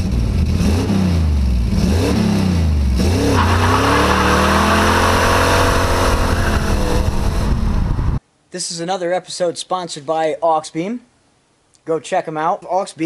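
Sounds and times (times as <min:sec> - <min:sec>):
car engine accelerating hard: 0:00.0 - 0:08.2
road noise: 0:00.0 - 0:08.2.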